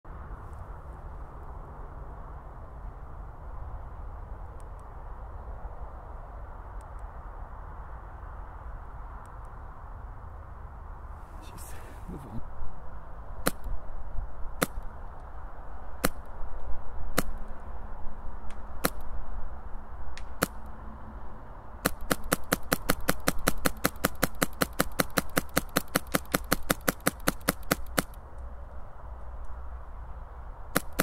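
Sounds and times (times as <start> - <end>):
airsoft rifle firing: 21.8 - 28.2, 30.7 - 31.0.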